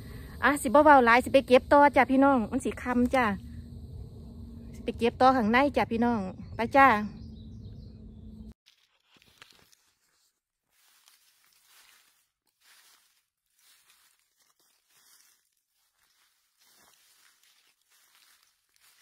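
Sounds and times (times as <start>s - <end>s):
rustling of dry leaves: 8.7s - 19.0s.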